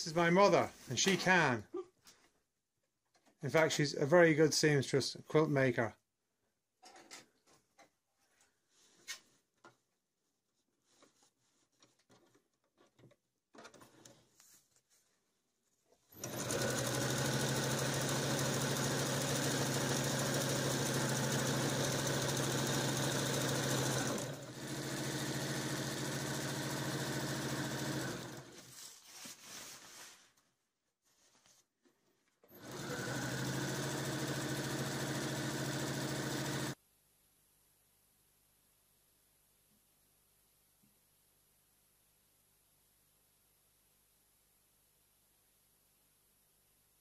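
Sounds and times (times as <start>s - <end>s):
faint handling sounds: 7.0s - 13.2s, 13.8s - 16.1s, 28.6s - 32.5s
sewing machine stitching: 16.1s - 28.6s, 32.5s - 36.8s.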